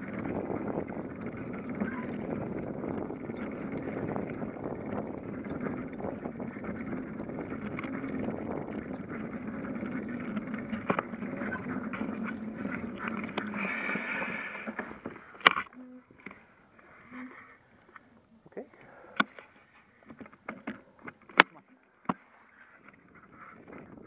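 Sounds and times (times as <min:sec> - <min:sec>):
rattles and clicks: 0:00.0 - 0:16.4
wind noise: 0:00.0 - 0:16.4, 0:22.8 - 0:24.0
bicycle rolling on concrete: 0:00.0 - 0:18.3.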